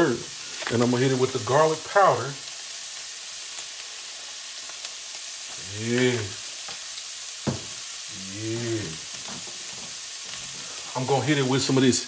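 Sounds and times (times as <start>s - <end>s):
meat sizzling in a skillet: 0.0s - 12.0s
man making wordless sounds: 5.6s - 6.5s, 8.1s - 9.1s.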